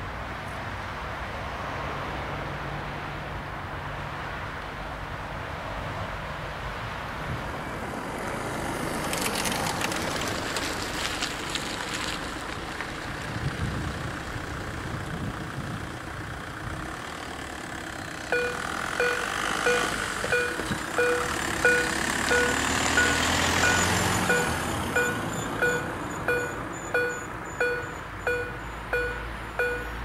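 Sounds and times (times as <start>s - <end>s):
road traffic passing: 0.0s - 30.0s
level crossing warning tones: 18.3s - 30.0s.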